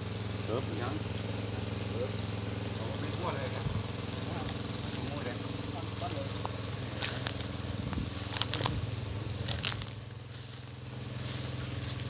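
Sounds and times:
small engine running: 0.0 - 12.0
sharp crackling clicks and rustles: 6.4 - 10.0.

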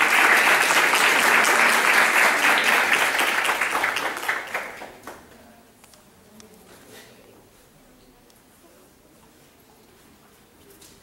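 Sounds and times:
crowd applauding: 0.0 - 5.3.

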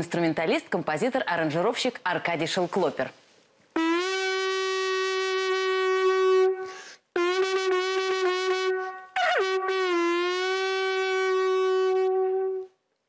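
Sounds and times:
conch shell trumpet notes: 3.8 - 12.8.

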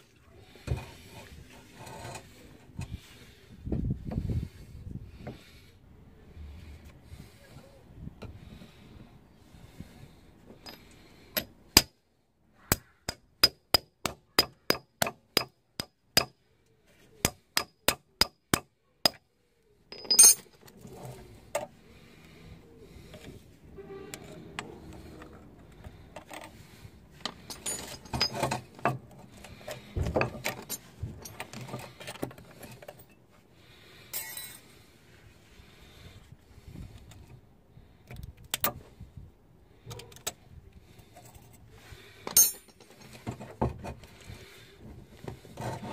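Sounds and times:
scraping and handling of clamp: 0.6 - 3.0, 19.9 - 21.8, 23.1 - 33.4, 41.0 - 45.9.

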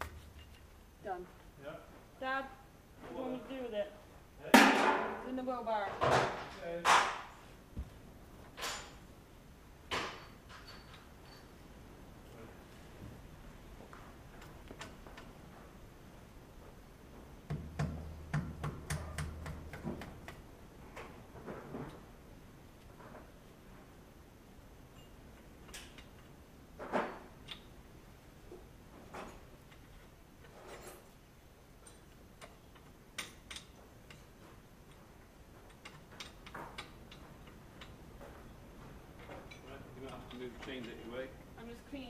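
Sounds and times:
metal chains clinking: 10.1 - 11.7, 30.4 - 31.2
metal parts clicking and tapping: 17.5 - 20.5, 24.9 - 27.8, 31.8 - 41.2.

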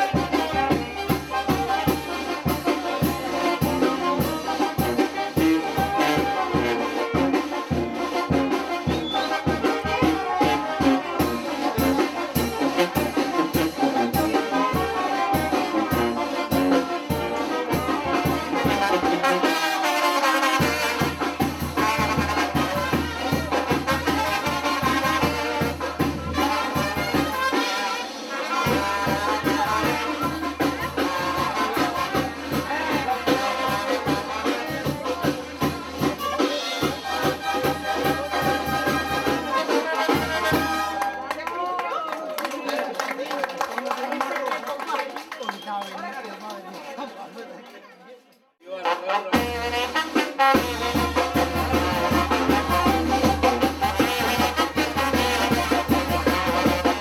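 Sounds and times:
brass band playing dance music: 0.0 - 41.8, 48.6 - 57.0.

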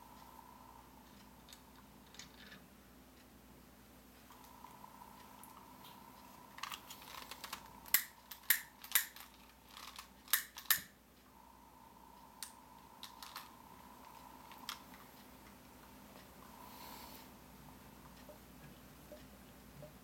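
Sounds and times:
sharp irregular clicks: 4.3 - 11.0, 12.1 - 16.6.

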